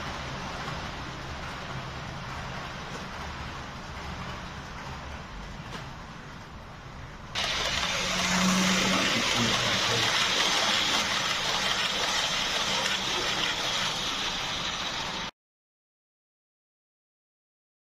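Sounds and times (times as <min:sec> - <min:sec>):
model train wheels hissing: 0:07.4 - 0:15.3.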